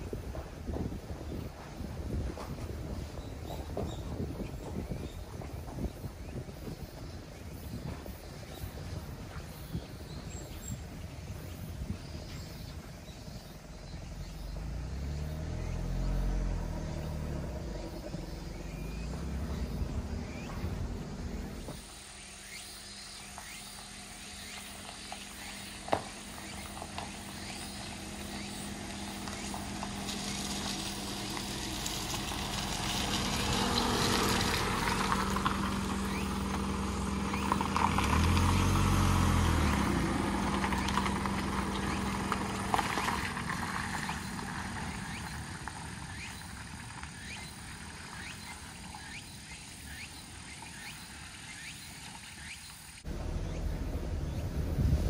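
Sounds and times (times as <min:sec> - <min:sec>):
diesel engine driving slowly: 0:00.0 - 0:55.0
gravel crunching under tyres: 0:00.0 - 0:55.0.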